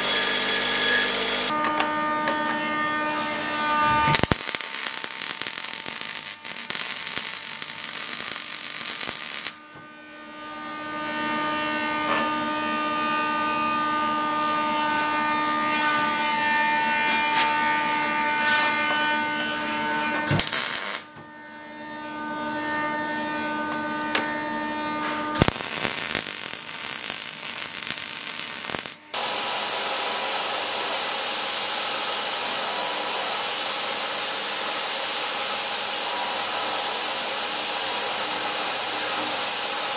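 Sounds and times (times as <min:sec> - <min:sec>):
belt grinder humming: 0:00.0 - 0:01.5.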